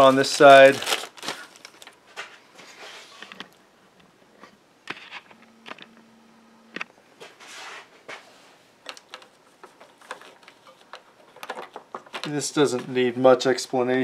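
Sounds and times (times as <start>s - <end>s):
plastic bag rustle: 0.0s - 3.3s, 8.9s - 13.1s.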